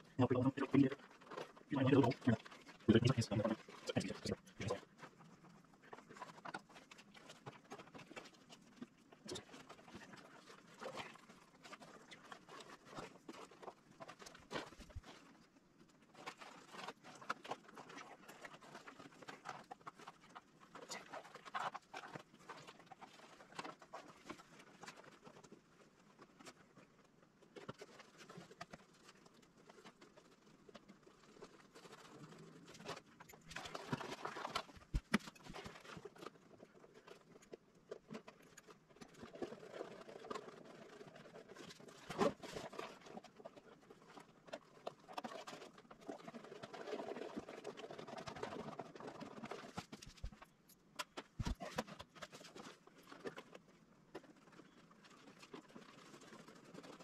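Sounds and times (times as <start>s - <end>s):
fabric rustling: 27.6s - 37.5s, 39.0s - 57.0s.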